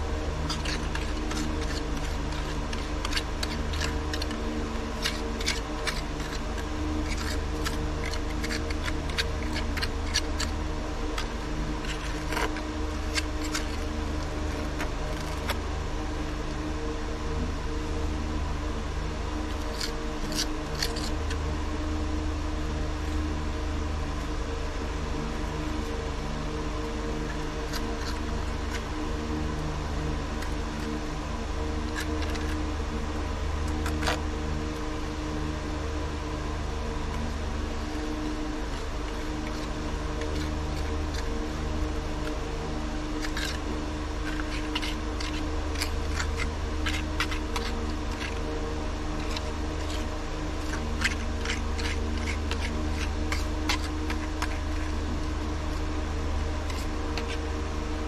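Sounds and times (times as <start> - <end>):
steady mechanical hum: 0.0 - 58.0
trowels scraping and tapping: 0.4 - 10.6, 11.2 - 15.6, 31.9 - 32.6, 38.7 - 41.4, 43.2 - 48.5, 49.1 - 54.9.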